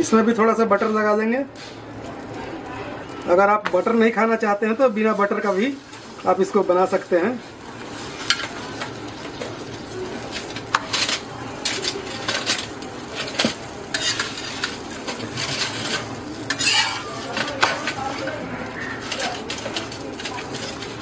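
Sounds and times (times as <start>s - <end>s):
bread sizzling on a griddle: 0.0s - 21.0s
metal spatula scraping a pan: 10.3s - 21.0s.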